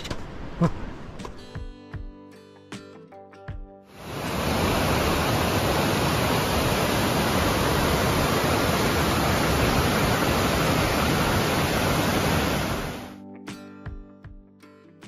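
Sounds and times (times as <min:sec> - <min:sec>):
creek rushing over boulders: 0:04.0 - 0:13.1.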